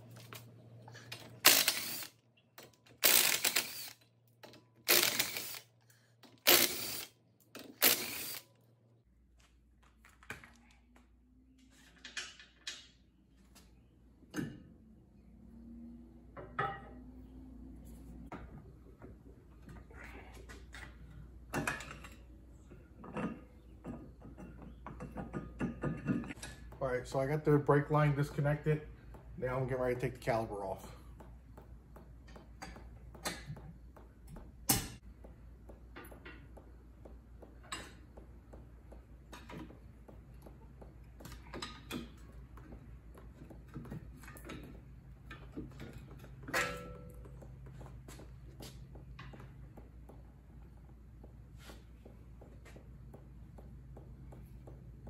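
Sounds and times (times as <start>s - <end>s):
cordless impact tool bursts: 1.4s - 2.2s, 3.0s - 4.0s, 4.8s - 5.7s, 6.4s - 8.5s
tools clinking and knocking: 23.0s - 26.8s, 35.9s - 38.2s, 38.9s - 48.1s.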